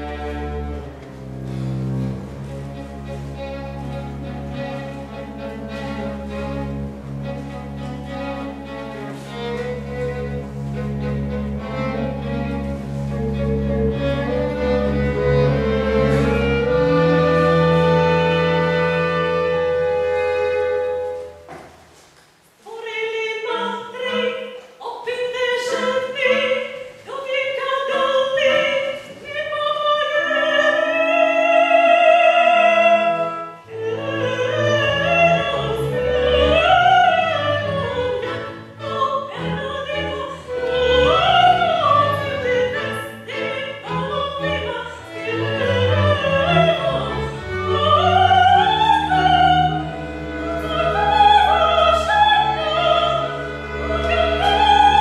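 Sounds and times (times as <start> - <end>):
chamber orchestra strings: 0.0 - 21.5, 23.4 - 55.0
soprano singing opera: 22.6 - 55.0.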